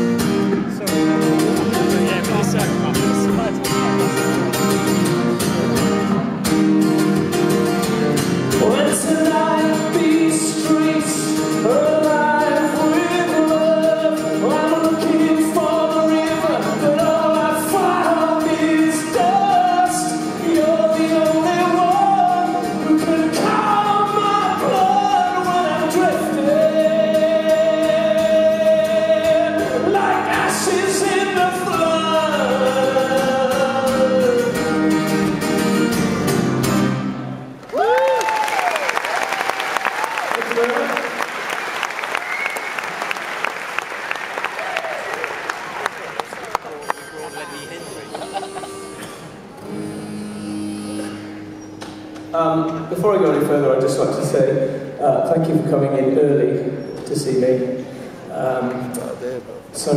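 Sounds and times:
acoustic guitar strumming: 0.0s - 37.6s, 46.2s - 59.9s
man singing: 8.5s - 35.1s.

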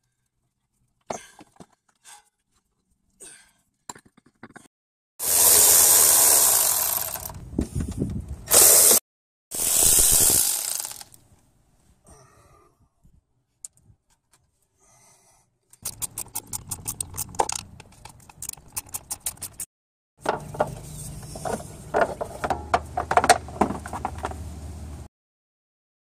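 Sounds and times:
ratchet wrench clicking: 5.2s - 7.4s, 9.6s - 11.2s, 15.8s - 19.7s.

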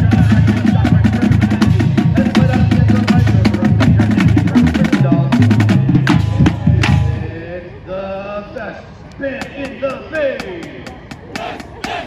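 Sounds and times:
snare and tenor drums: 0.0s - 7.2s, 9.3s - 12.0s
marching band playing: 0.0s - 7.5s, 9.3s - 12.0s.

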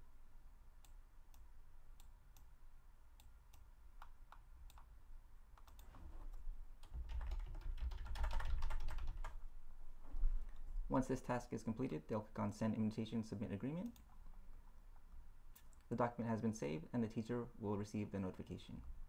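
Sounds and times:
computer keyboard typing: 6.8s - 9.4s.

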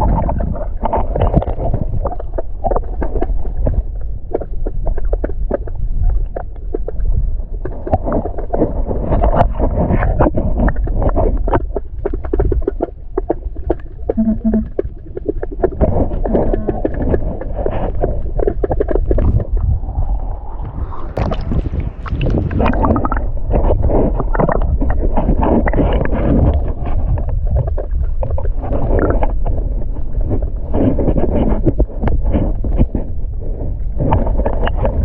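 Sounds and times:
wind rumble on microphone: 0.0s - 35.0s
river water splashing: 19.8s - 23.2s.

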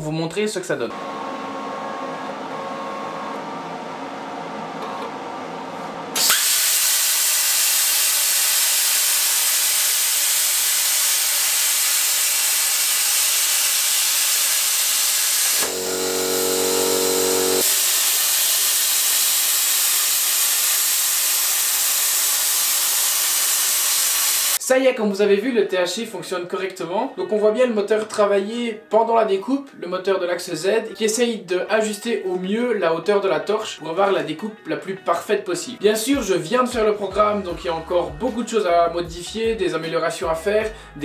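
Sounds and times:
plasma cutter hissing: 6.2s - 24.6s
steady hum: 15.4s - 17.6s
low buzzing hum: 15.5s - 17.6s.

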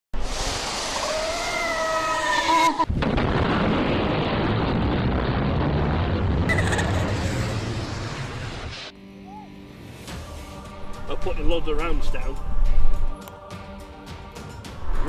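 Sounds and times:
deep rumbling boom: 2.9s - 8.9s
rushing whoosh with wavering tones: 14.7s - 15.0s.

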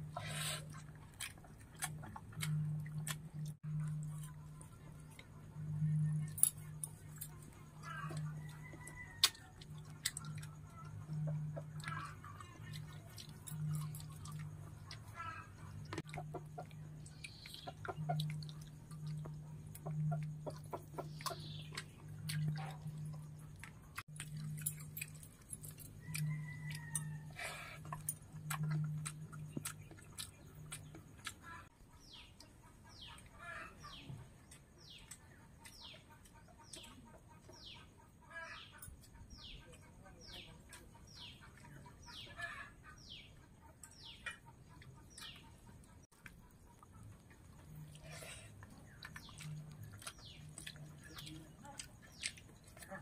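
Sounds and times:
chickens clucking: 0.0s - 24.8s, 25.9s - 53.0s
low steady hum: 0.0s - 38.2s
birds calling: 9.8s - 24.7s.

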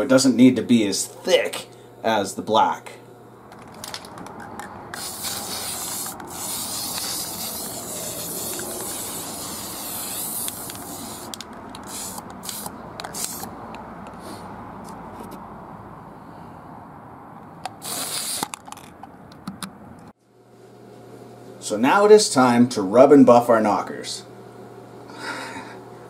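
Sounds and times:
spray paint can hissing: 4.9s - 13.5s, 17.7s - 18.6s.

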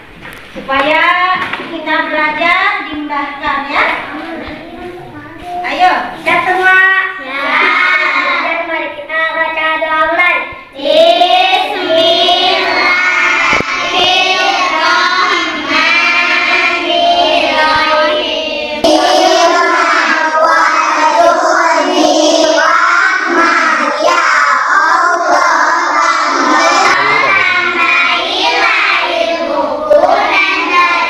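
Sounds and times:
children reciting together: 2.3s - 31.0s
children singing in unison: 7.2s - 8.6s, 10.8s - 31.0s.

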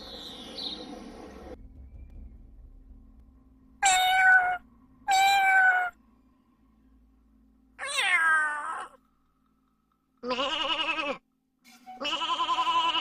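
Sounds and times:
cat meowing: 3.8s - 6.0s, 7.8s - 9.0s, 10.2s - 11.2s, 12.0s - 13.0s.

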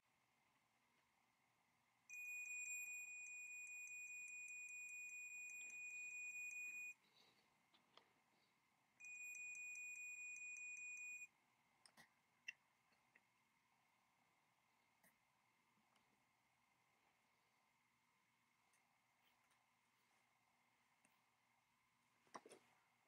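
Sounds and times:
multimeter continuity beep: 2.1s - 7.0s, 9.0s - 11.3s.

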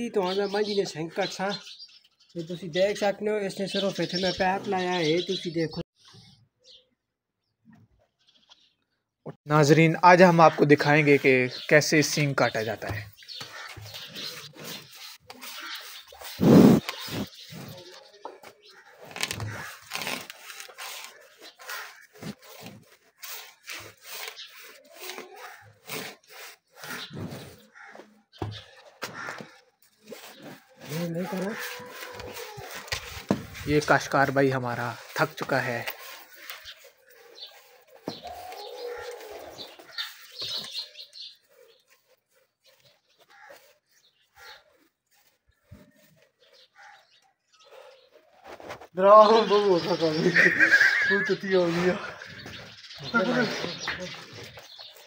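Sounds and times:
small birds chirping: 0.0s - 55.0s
wire saw rasping through horn: 30.1s - 33.3s
pigeons cooing: 37.1s - 40.8s.

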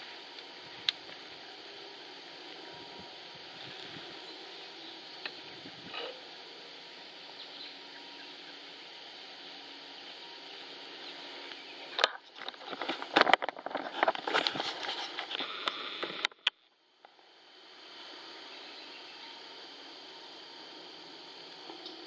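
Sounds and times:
high background hiss: 0.0s - 22.0s
close rustling and crackling: 11.0s - 16.6s.

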